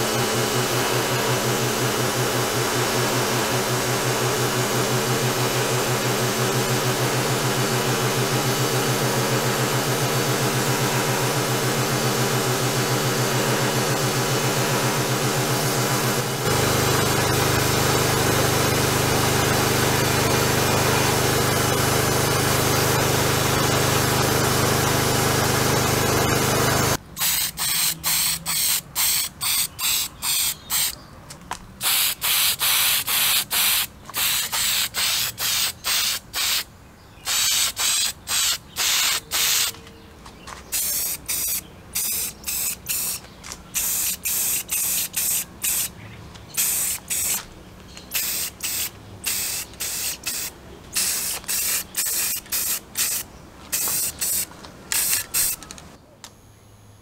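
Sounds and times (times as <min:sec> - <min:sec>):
spray paint can bursts: 0:00.0 - 0:31.0, 0:31.8 - 0:39.8, 0:40.6 - 0:45.9, 0:46.5 - 0:55.8
abrasive blasting hiss: 0:48.1 - 0:55.6.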